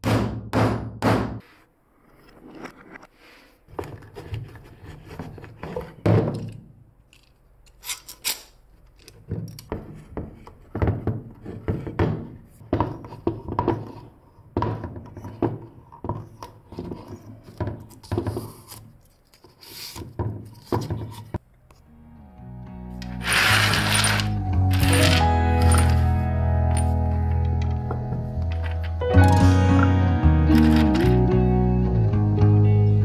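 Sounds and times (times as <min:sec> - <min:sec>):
clamp screws rubbing: 0:23.0 - 0:25.9.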